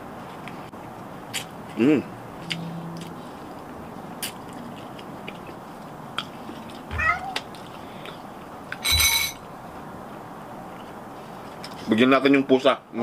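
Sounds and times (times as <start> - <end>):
cat meowing: 6.9 - 7.5.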